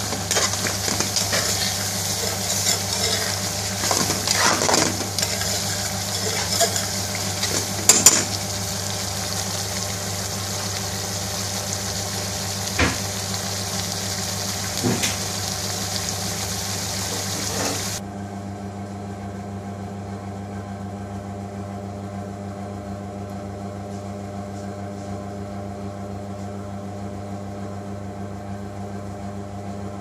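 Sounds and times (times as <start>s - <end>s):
sauce sizzling and bubbling: 0.0s - 18.0s
steady low hum: 0.0s - 27.3s.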